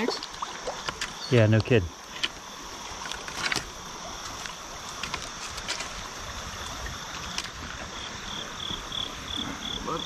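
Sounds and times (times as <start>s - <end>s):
creek water rushing: 0.0s - 10.0s
insect chirping: 0.0s - 10.0s.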